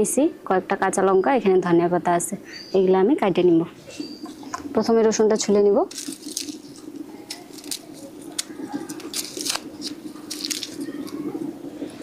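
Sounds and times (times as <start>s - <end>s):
garlic skin crackling: 4.3s - 12.0s.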